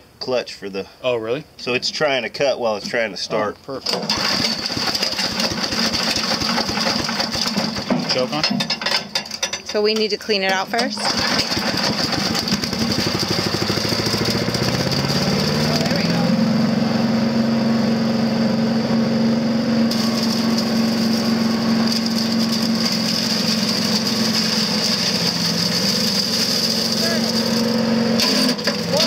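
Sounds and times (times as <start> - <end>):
small engine running: 4.0 - 7.9, 11.0 - 29.0
dry leaves being shredded: 4.0 - 8.3, 11.0 - 16.4, 19.7 - 29.0.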